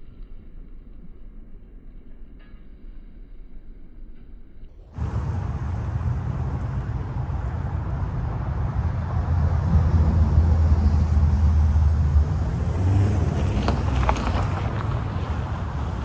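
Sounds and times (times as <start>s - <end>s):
low steady hum: 0.0s - 12.7s
train passing: 4.8s - 16.0s.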